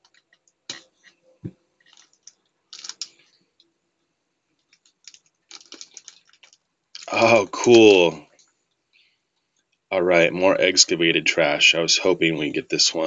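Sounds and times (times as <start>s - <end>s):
plastic bag crinkling: 1.8s - 3.4s, 4.7s - 7.2s.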